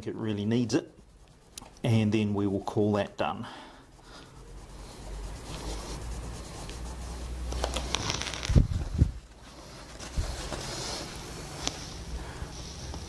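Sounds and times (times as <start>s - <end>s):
paper rustling: 4.8s - 11.9s.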